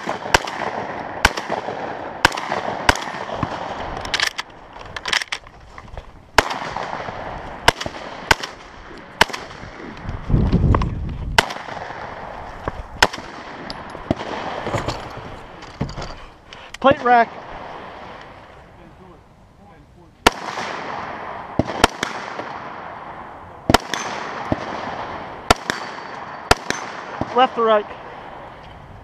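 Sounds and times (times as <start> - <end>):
shotgun shots: 0.0 - 5.4, 6.3 - 10.0, 11.4 - 12.4, 13.0 - 14.9, 20.2 - 27.8.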